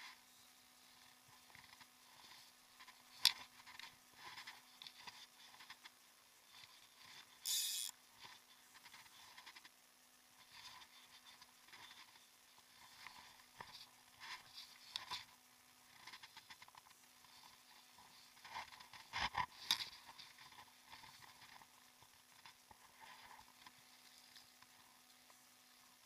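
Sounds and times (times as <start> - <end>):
fishing line ticks and rustles: 0.0 - 26.0
short hiss: 7.4 - 7.9.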